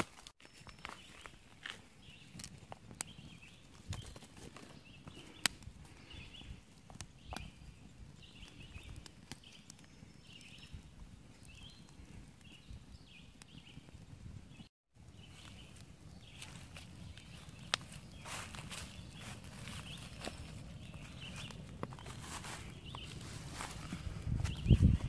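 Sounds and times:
bird chirping: 14.5s - 23.3s.

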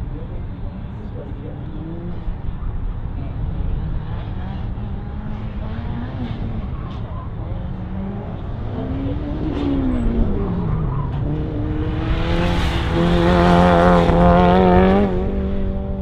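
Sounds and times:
race car engine revving: 0.8s - 16.0s.

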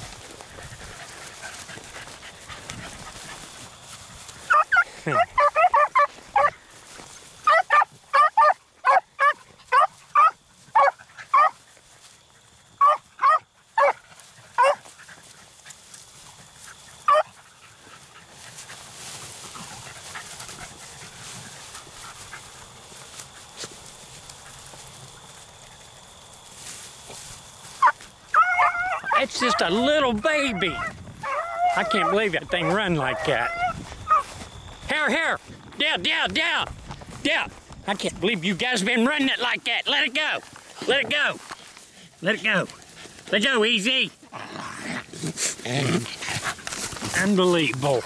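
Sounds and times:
rustle of brush: 0.0s - 35.8s, 36.7s - 48.0s
beagles barking: 4.4s - 11.7s, 12.7s - 15.3s, 16.6s - 22.6s, 27.7s - 34.4s.

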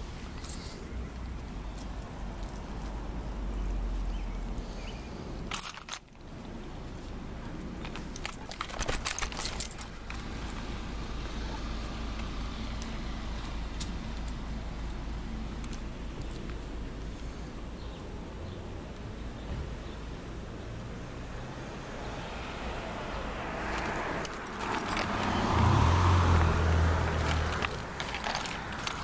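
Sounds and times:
metal chain collar jingling: 5.5s - 6.0s, 8.1s - 10.7s, 23.8s - 25.9s, 27.2s - 29.0s.

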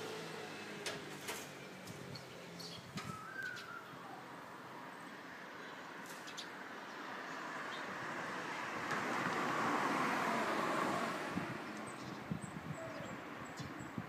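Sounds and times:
vehicle passing by: 0.0s - 2.7s, 7.0s - 12.4s
faint bird chirps: 2.6s - 4.3s.

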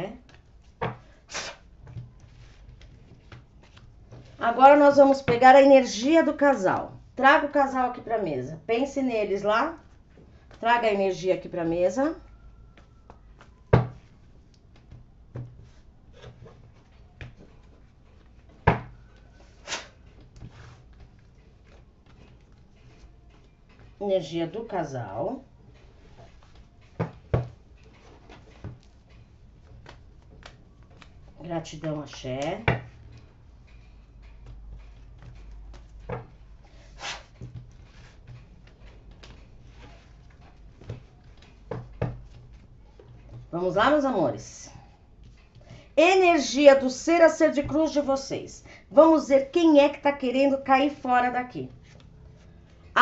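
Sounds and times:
cards being shuffled: 0.3s - 4.4s
cards sliding on cloth: 19.5s - 21.0s, 36.7s - 38.2s.

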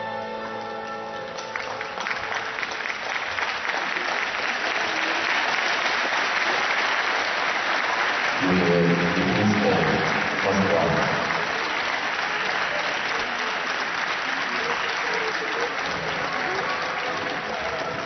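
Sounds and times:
audience applauding: 0.0s - 18.0s
person speaking: 8.4s - 11.3s.

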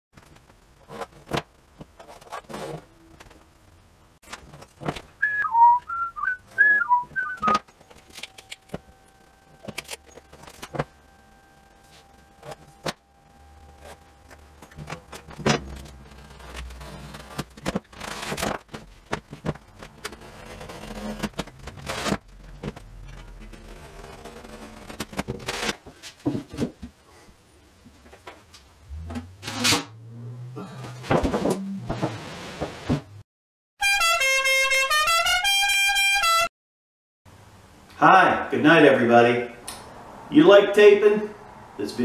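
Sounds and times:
man whistling a tune: 5.2s - 7.6s.

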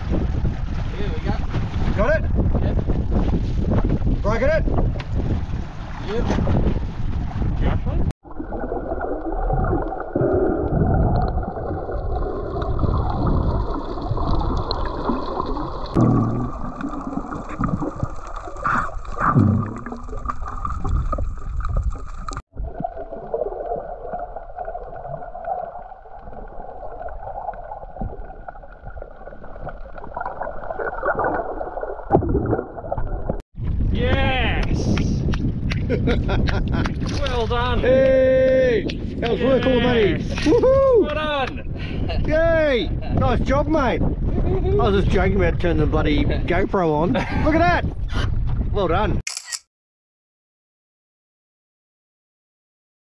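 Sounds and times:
low rumbling: 0.0s - 24.6s
muffled water sloshing and gurgling: 0.0s - 34.0s, 35.0s - 39.3s.

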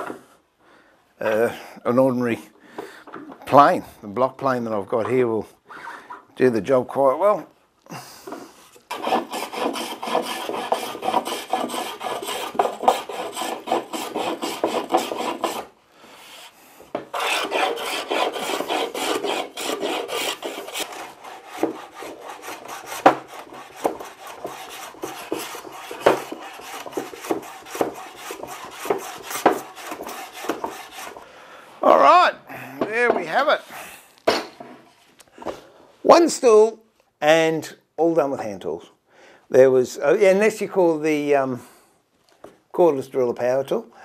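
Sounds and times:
block plane scraping wood: 8.9s - 31.2s.

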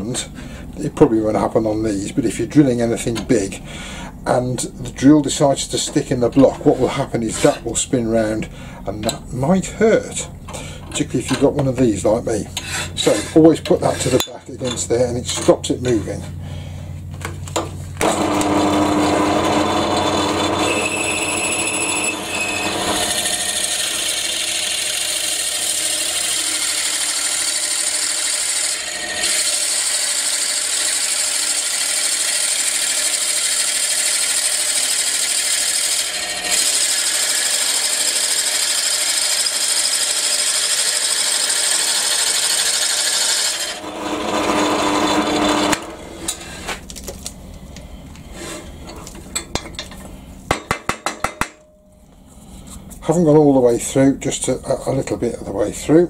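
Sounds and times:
drill bit cutting wood: 18.0s - 46.1s
pillar drill motor: 18.0s - 46.5s.

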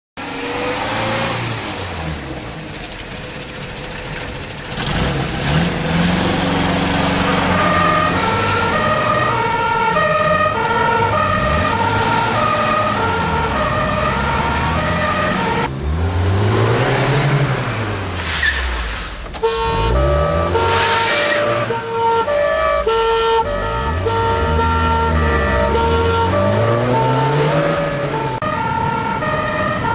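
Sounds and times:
car engines revving: 0.2s - 29.9s
police two-tone siren: 7.3s - 15.7s, 19.4s - 29.9s.

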